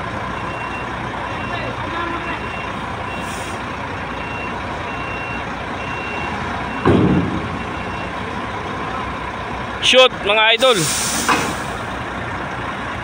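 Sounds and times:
truck diesel engine running: 0.0 - 13.0
reversing alarm beeping: 0.4 - 8.2
loud burst of noise: 10.6 - 11.9.

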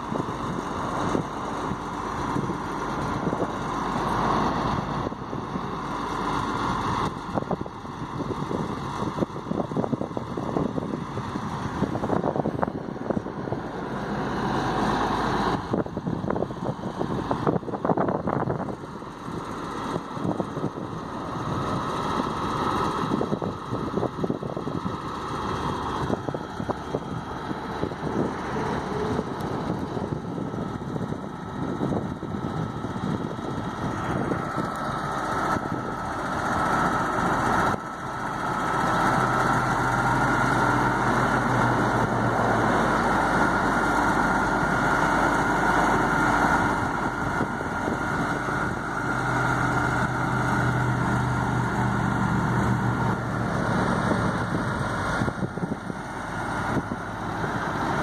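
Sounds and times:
truck engine running: 0.0 - 58.0
wind buffeting microphone: 0.0 - 58.0.

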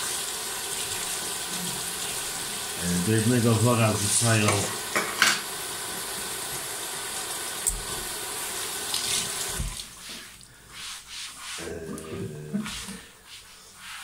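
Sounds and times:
tap running into metal sink: 4.4 - 5.5.

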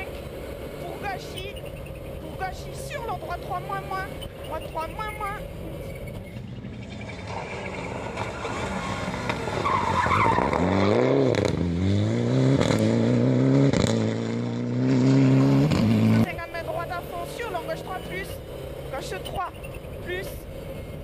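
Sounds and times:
tyres squealing: 0.0 - 10.7, 16.2 - 21.0
rally car engine accelerating: 0.0 - 21.0.

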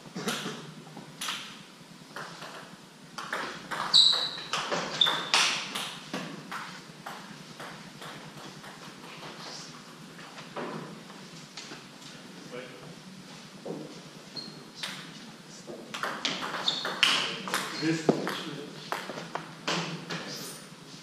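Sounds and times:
short high squeaks: 3.9 - 5.4, 16.6 - 17.0.

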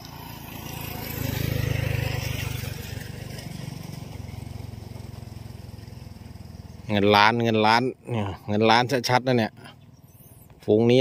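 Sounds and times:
small motorcycle engine running: 0.0 - 8.8.

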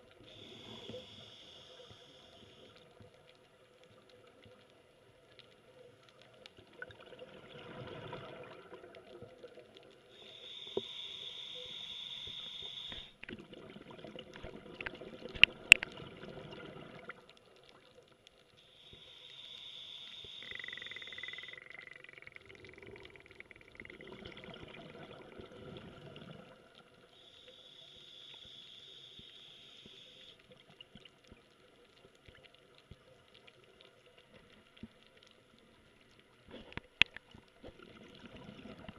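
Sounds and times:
regulator hissing inhalations: 0.2 - 2.8, 10.1 - 13.2, 18.6 - 21.6, 27.2 - 30.4
exhaled bubbles: 13.2 - 17.3, 20.4 - 27.0, 37.6 - 38.9.

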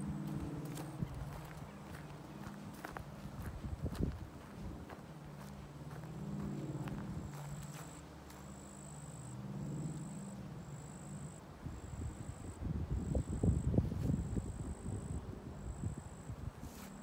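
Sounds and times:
footsteps crunching on trail: 0.0 - 8.8
low drone: 5.6 - 12.5.

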